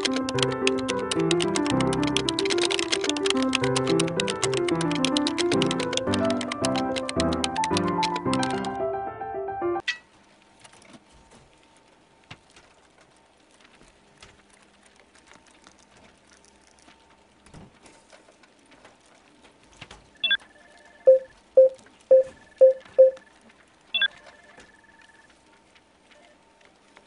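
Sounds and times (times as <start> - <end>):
electronic beep: 20.2 - 23.2, 24.0 - 24.2.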